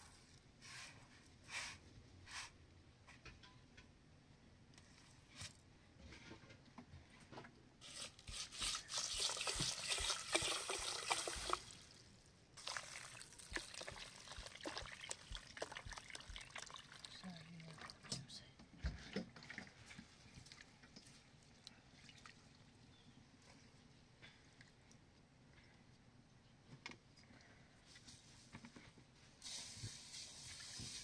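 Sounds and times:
water pouring and trickling: 7.8 - 18.2, 21.9 - 22.6, 29.4 - 31.0.

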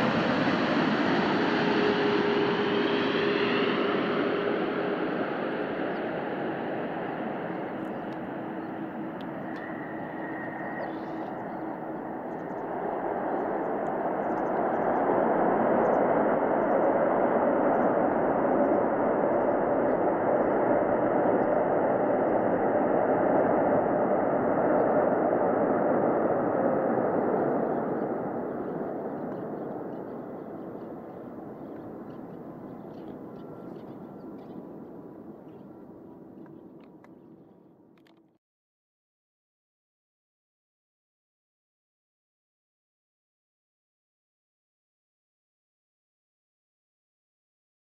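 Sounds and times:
jet engine rumble: 0.0 - 37.7.

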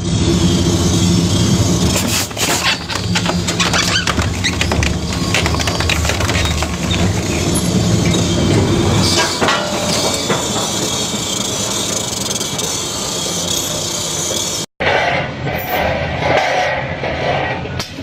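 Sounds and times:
shredder grinding hiss: 0.0 - 4.4
cutters crunching wood: 1.7 - 8.2
shredded fragments pouring out: 1.8 - 8.0.

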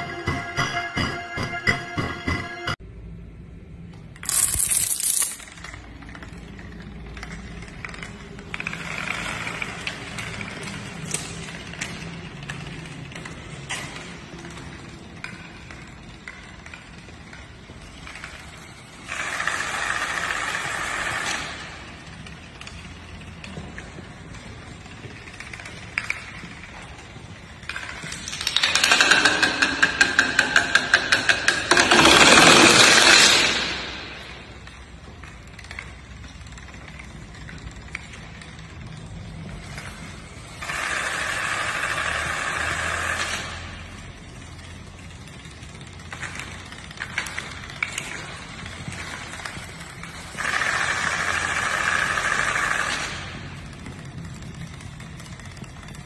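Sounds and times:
dominoes toppling on tiled floor: 4.2 - 6.7, 31.1 - 33.9.

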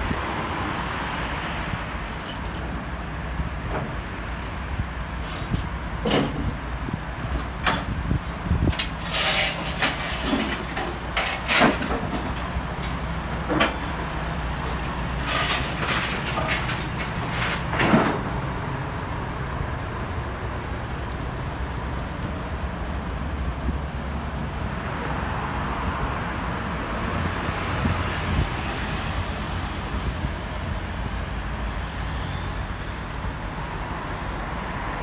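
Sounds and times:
low vehicle hum: 0.0 - 32.4
sharp clanks: 3.7 - 6.8, 8.6 - 14.1, 14.7 - 18.4.

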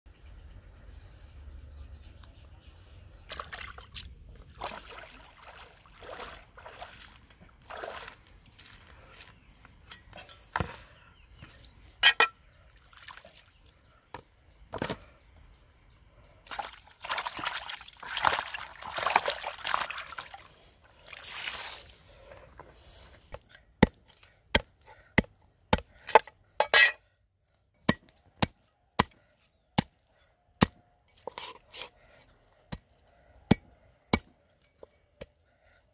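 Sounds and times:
water splashing and trickling: 3.1 - 9.4, 11.4 - 13.9, 16.4 - 23.4
hands sloshing meat in water: 3.3 - 8.3, 12.7 - 13.7, 16.5 - 22.0.

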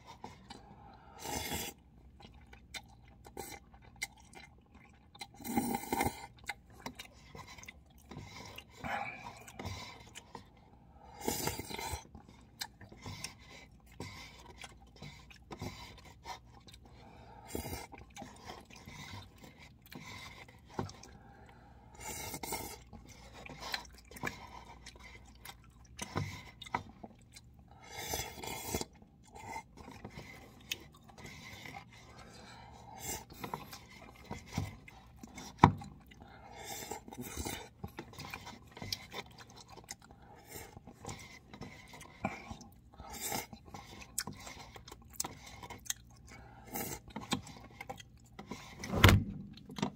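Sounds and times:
chewing: 0.0 - 49.9
man slurping noodles: 8.8 - 9.9.

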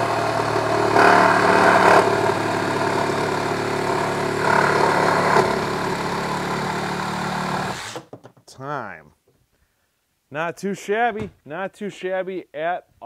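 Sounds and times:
reciprocating saw cutting board: 0.0 - 8.1.

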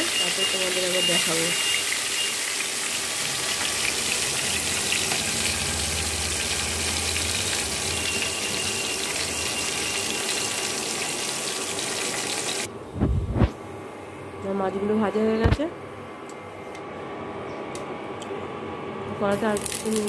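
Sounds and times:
fish frying in hot oil: 0.0 - 12.7.

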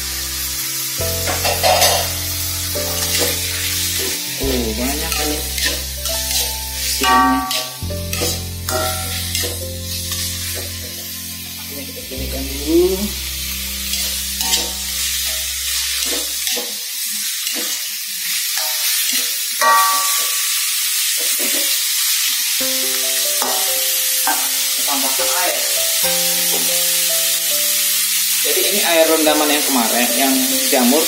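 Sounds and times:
food sizzling in oil: 0.0 - 31.0
metal spatula scraping a wok: 1.3 - 2.2, 2.9 - 4.2, 5.1 - 10.6, 13.9 - 16.8.

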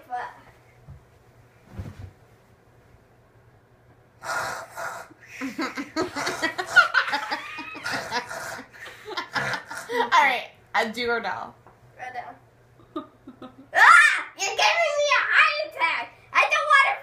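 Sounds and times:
thump into leather armchair: 1.6 - 2.2.

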